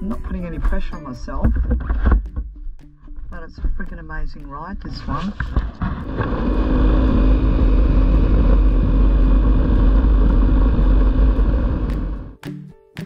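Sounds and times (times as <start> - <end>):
wind rumble on microphone: 3.3 - 12.4
motorcycle engine cruising: 5.8 - 12.4.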